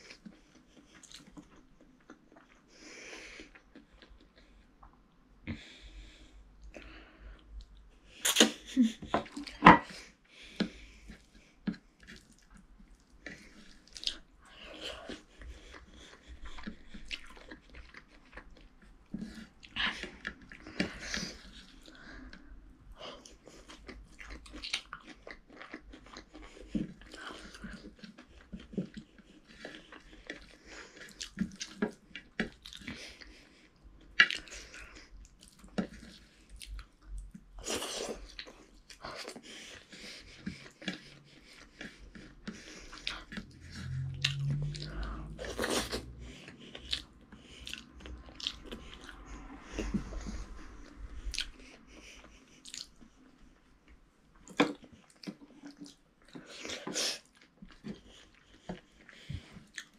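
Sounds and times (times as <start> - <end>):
child chewing food: 0.0 - 59.9
mouth clicks and smacks: 8.1 - 9.7, 51.3 - 51.8, 52.6 - 53.1.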